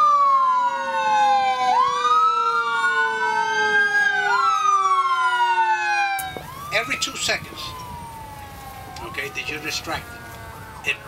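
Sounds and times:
fire engine sirens wailing: 0:00.0 - 0:11.0
low sinking siren tone: 0:00.0 - 0:11.0.

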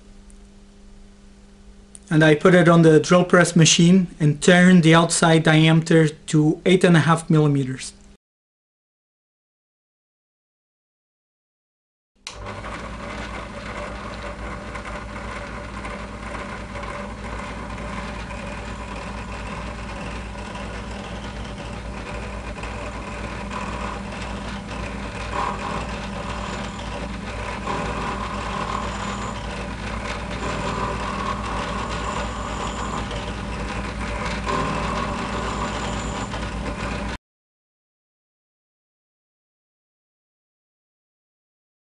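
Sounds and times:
drill press motor hum: 0:12.2 - 0:37.2
scraping cutting noise: 0:12.3 - 0:37.2.

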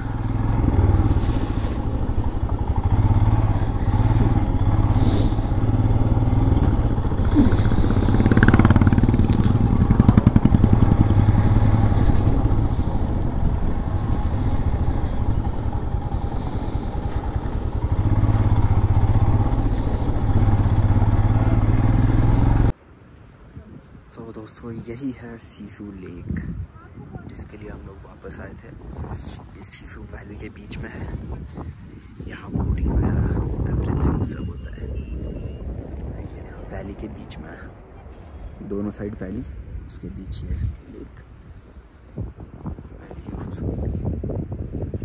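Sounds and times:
motorcycle engine running: 0:00.0 - 0:22.7.

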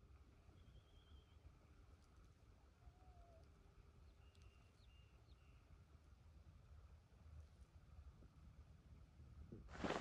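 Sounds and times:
faint whistled note: 0:00.6 - 0:01.4.

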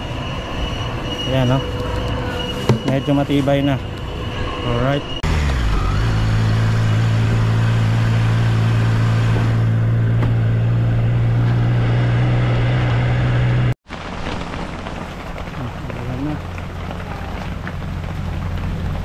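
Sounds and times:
motorcycle engine cruising: 0:04.4 - 0:19.0
wind and tyres on wet road: 0:05.3 - 0:19.0.

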